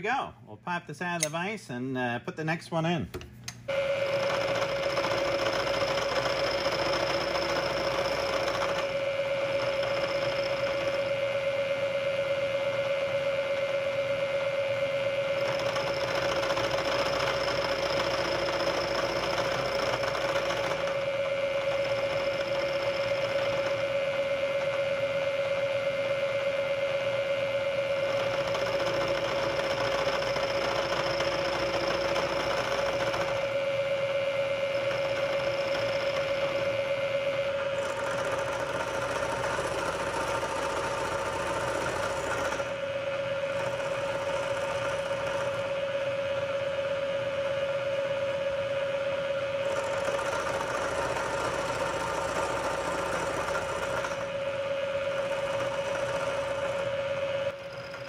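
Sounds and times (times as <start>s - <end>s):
milling machine motor hum: 3.2s - 58.0s
cutter whining on metal: 3.7s - 58.0s.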